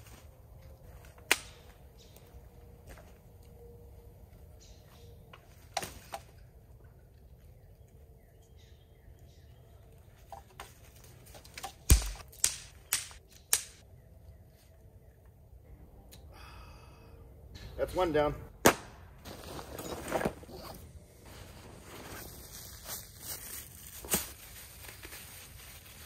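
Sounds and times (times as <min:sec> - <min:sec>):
dry wood cracking: 0:10.3 - 0:13.8.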